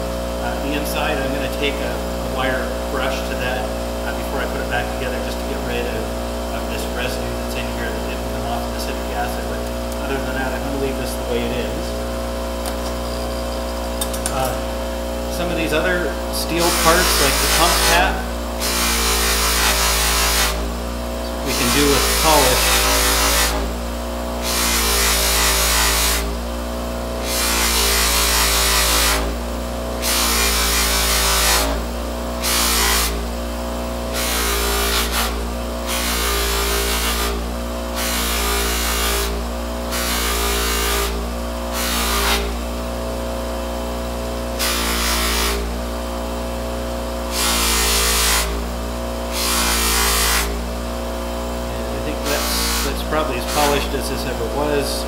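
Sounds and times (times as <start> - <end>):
bench grinder motor hum: 0.0 - 55.0
metal hissing rasp on wheel: 12.8 - 26.4, 27.2 - 29.4, 30.0 - 33.3, 34.0 - 42.6, 49.3 - 50.7, 51.8 - 54.0.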